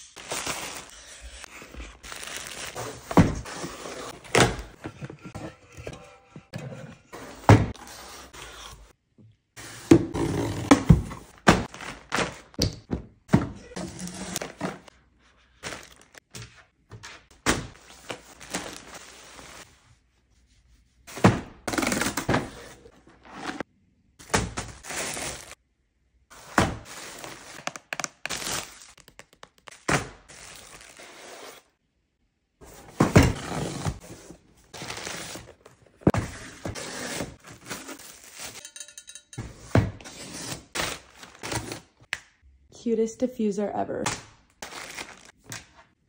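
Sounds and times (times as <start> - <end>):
plastic bags rustling: 1.6 - 4.8, 15.6 - 16.2, 17.9 - 19.6, 44.6 - 45.4.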